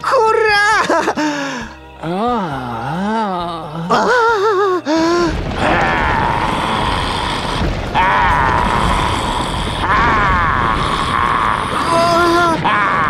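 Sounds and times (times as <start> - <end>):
rumble of running footfalls: 5.3 - 13.0.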